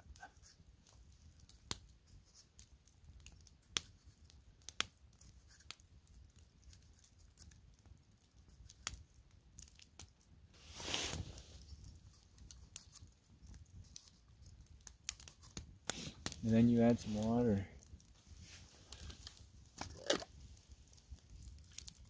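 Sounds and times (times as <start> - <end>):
scraping rustle: 10.6 - 11.7.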